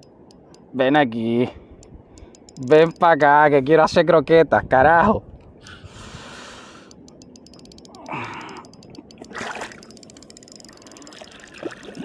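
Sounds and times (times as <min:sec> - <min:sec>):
fishing reel clicking: 0:00.0 - 0:00.7, 0:01.8 - 0:03.4, 0:06.8 - 0:12.0
sharp breath: 0:05.6 - 0:07.0
water splashing: 0:09.2 - 0:09.9, 0:10.9 - 0:12.0.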